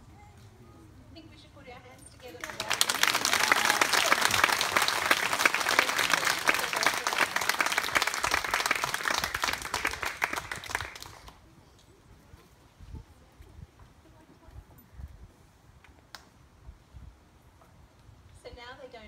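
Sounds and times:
guests applauding: 2.4 - 11.4.

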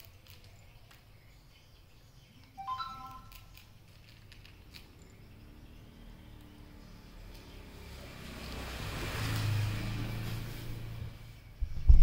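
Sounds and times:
kitten crunching kibble: 0.0 - 1.1, 3.2 - 5.2
high ringing chime: 2.6 - 3.4.

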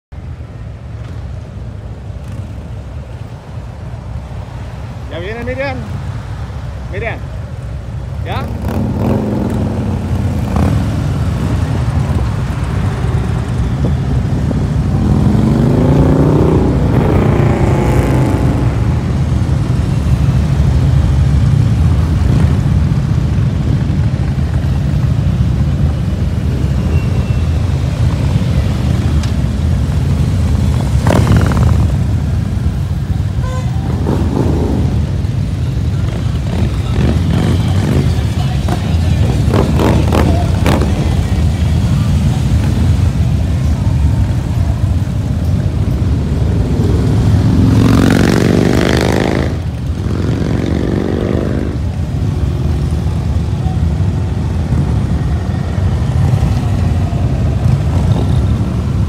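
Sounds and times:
motorcycles rumbling past: 8.3 - 23.2, 26.0 - 53.5.

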